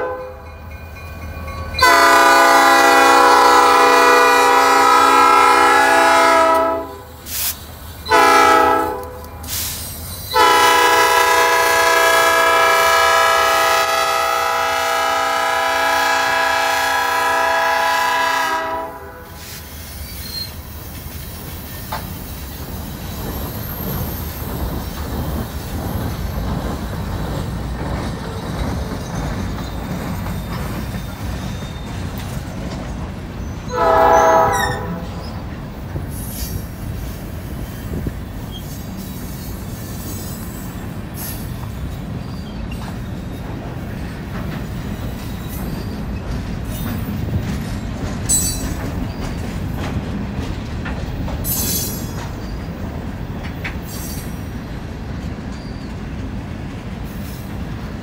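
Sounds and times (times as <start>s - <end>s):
locomotive air horn blasts: 0.0s - 0.4s, 1.8s - 7.2s, 8.1s - 9.3s, 10.3s - 19.4s, 33.7s - 35.2s
train cars rumbling and clattering: 0.0s - 58.0s.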